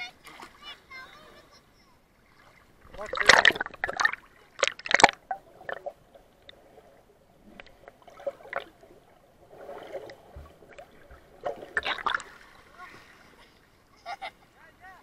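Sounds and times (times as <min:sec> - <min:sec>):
muffled underwater sloshing: 0:00.1 - 0:14.5
water splashing: 0:02.1 - 0:14.2
bubbles crackling against housing: 0:02.8 - 0:06.6, 0:07.5 - 0:12.3.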